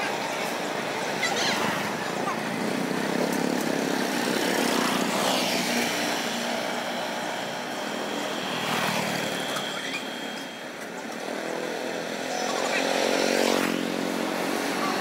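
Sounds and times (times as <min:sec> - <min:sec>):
motorbikes passing: 0:00.0 - 0:15.0.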